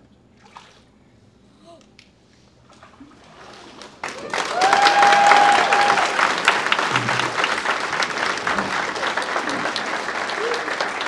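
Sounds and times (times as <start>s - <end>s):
crowd applauding and cheering: 3.4s - 11.0s.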